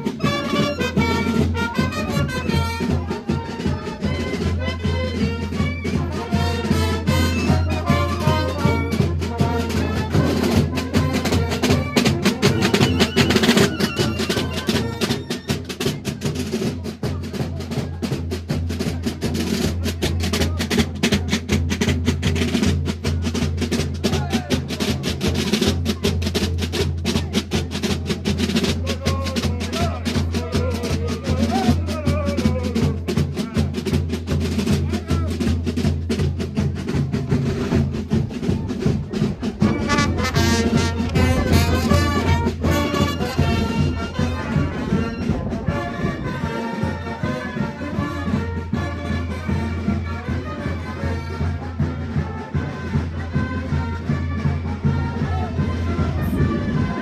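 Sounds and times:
brass horns playing: 0.0 - 15.1, 39.4 - 51.7
drums beating rapid rhythm: 0.0 - 57.0.

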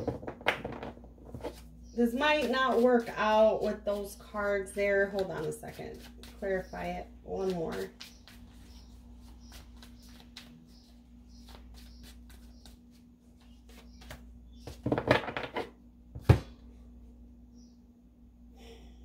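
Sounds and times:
cards being shuffled: 5.2 - 6.4, 7.4 - 14.8.

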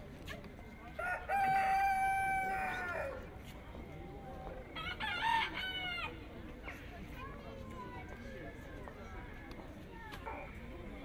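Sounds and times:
rooster crowing: 1.0 - 3.2.

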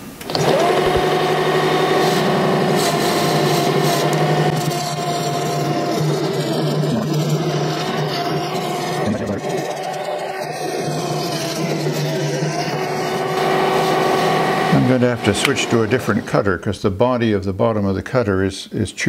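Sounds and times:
metal lathe whine: 0.2 - 16.5
cutter scraping metal: 0.3 - 16.5.

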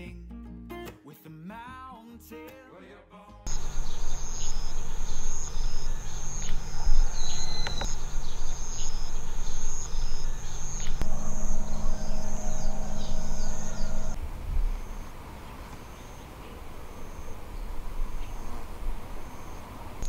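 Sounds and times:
low rumble: 3.5 - 15.9
insects chirring: 3.5 - 20.0.

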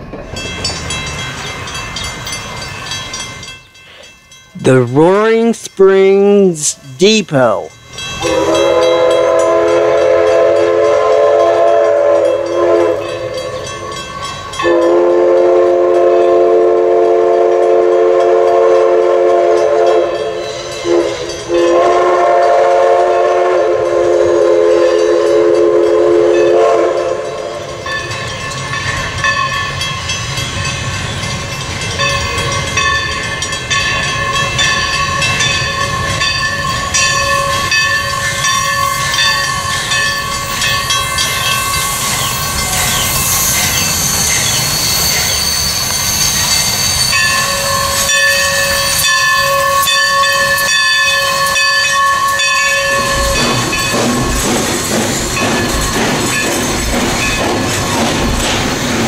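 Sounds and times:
steam whistle blasts: 8.2 - 13.7, 14.6 - 27.7, 40.5 - 53.4
locomotive rumbling: 23.8 - 59.0.

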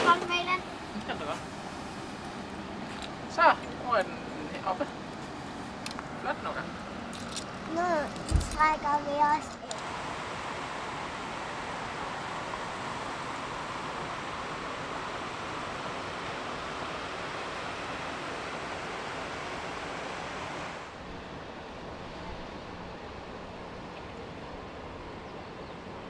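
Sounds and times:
wind and water rushing: 0.0 - 26.0.

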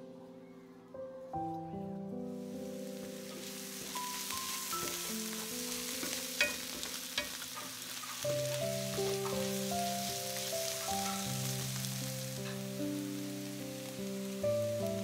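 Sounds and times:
soft background music: 0.0 - 15.0
vegetables sizzling in frying pan: 2.4 - 15.0
wooden spatula stirring: 3.4 - 12.8.

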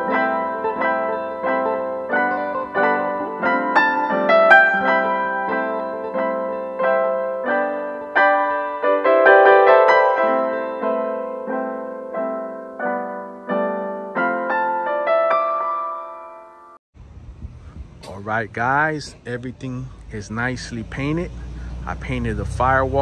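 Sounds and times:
piano music: 0.0 - 16.8.

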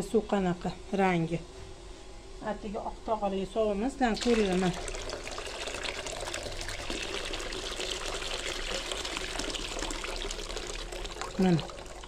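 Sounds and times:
water pouring into basin: 4.2 - 12.0.

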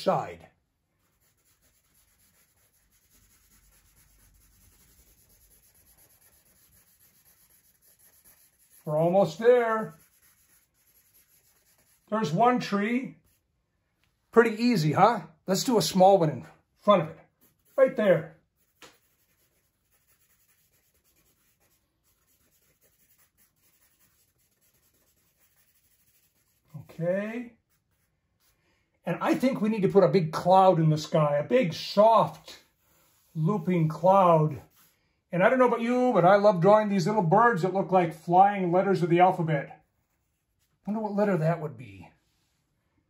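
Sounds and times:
pencil scratching on paper: 1.0 - 13.5, 16.9 - 28.6, 32.7 - 35.0.

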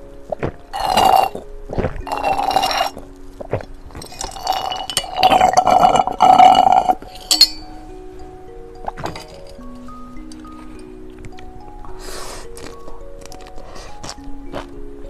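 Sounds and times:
background music: 0.0 - 15.0
slurping through a straw: 0.3 - 7.3
glass clink: 0.8 - 1.4, 2.1 - 3.0, 3.9 - 7.9, 8.8 - 10.9.

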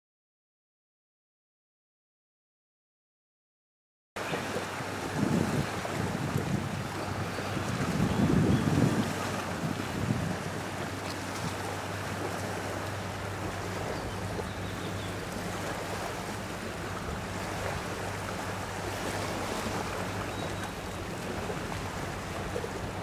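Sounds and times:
sea water washing: 4.2 - 23.0
wind noise on microphone: 4.7 - 11.6.

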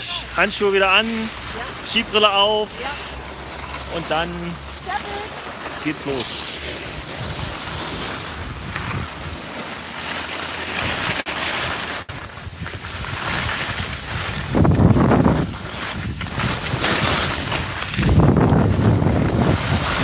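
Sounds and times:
skis scraping on snow: 0.0 - 20.0
wind rushing over microphone: 6.1 - 9.6, 12.0 - 20.0.

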